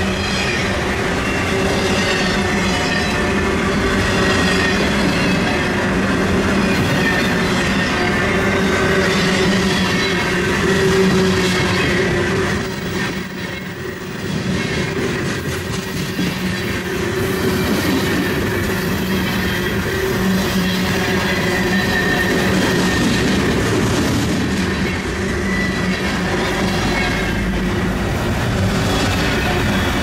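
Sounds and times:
freight train wheels clattering: 0.0s - 30.0s
high squeal of wheel flanges: 16.4s - 23.4s, 24.6s - 27.6s.

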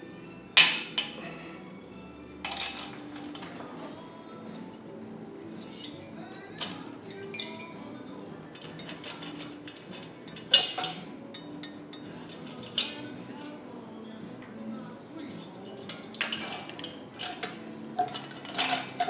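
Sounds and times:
metal clinks and knocks: 2.4s - 3.8s, 8.5s - 13.1s, 15.6s - 19.0s.

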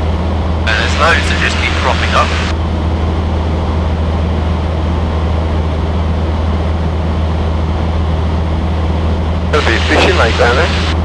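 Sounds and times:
light aircraft engine droning: 0.0s - 11.0s.

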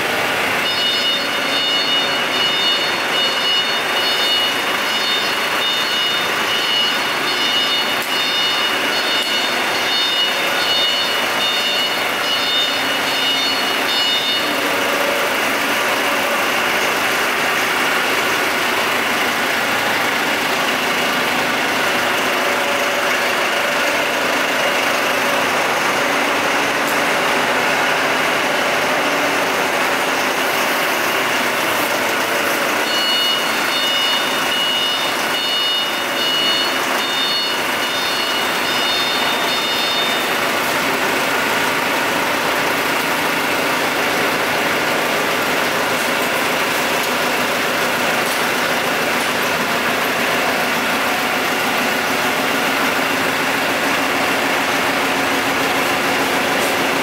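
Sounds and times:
diesel generator running: 0.0s - 57.0s
high-pitched broken beeping: 0.6s - 14.8s, 32.8s - 40.5s.

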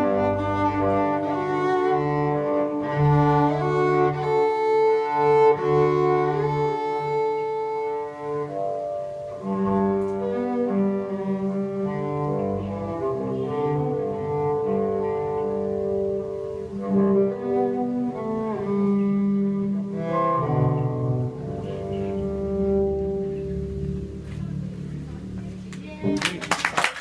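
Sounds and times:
bowed cello notes: 0.0s - 26.4s.

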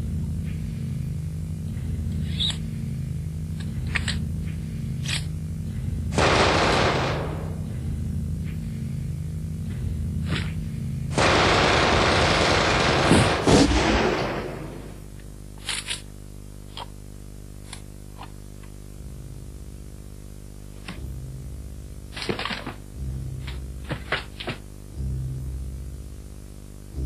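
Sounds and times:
low steady hum: 0.0s - 27.0s
gunfire: 6.2s - 7.7s, 11.1s - 15.0s.

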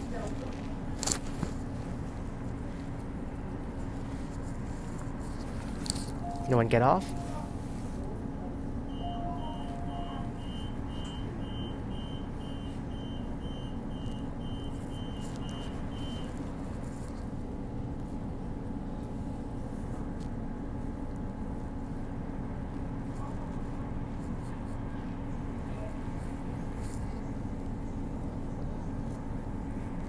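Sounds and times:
train electrical hum: 0.0s - 30.0s
door warning beeps: 6.2s - 7.5s, 8.9s - 16.3s.

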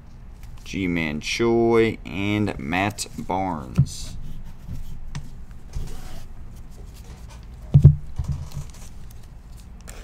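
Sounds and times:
cards and wrappers rustling: 6.6s - 10.0s.

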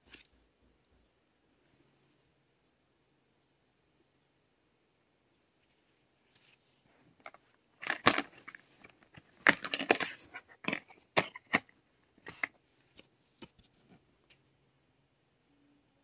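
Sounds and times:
plastic case clicking and crinkling: 7.2s - 13.8s.

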